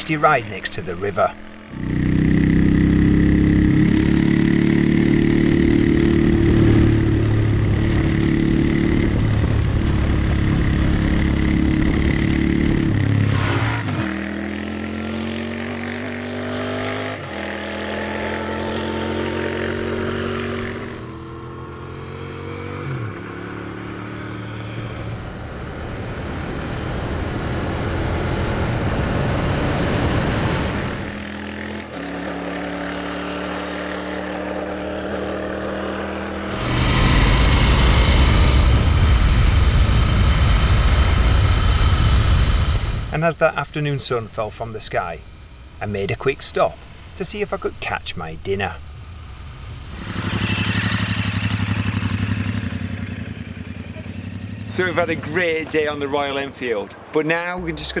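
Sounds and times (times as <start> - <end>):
motorcycle engine running: 0.0 - 13.3, 48.2 - 56.5.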